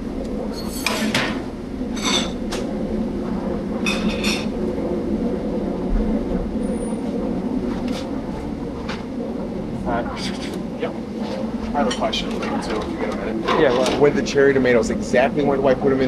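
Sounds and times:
kitchen hum: 0.0s - 5.4s.

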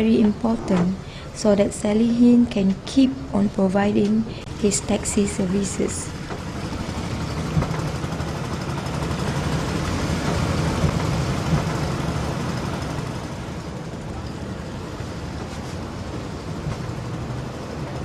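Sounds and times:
boat engine running: 2.6s - 18.0s.

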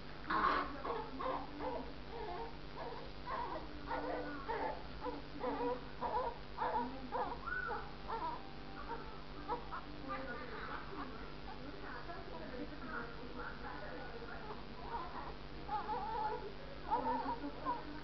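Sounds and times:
newborn baby crying: 0.3s - 10.8s, 14.4s - 17.9s.

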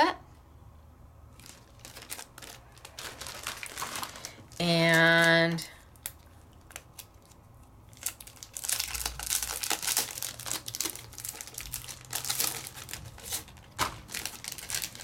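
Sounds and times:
packaging crinkling: 1.3s - 15.0s.

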